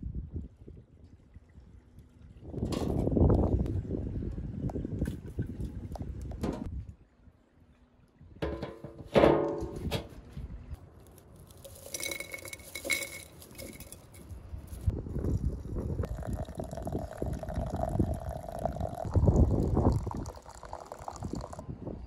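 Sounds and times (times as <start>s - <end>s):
water pouring into glass teapot: 15.2s - 21.6s.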